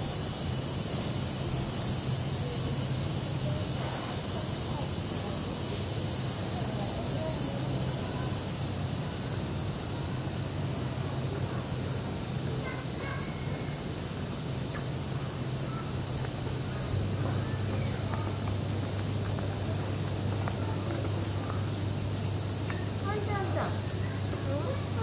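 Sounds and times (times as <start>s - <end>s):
insects chirring: 0.0s - 25.0s.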